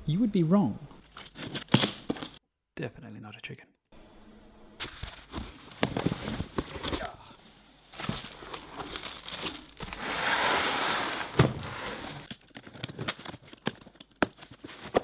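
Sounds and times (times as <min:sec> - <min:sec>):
cardboard rustling and crackling: 0:01.1 - 0:02.4, 0:04.8 - 0:07.2, 0:07.9 - 0:15.0.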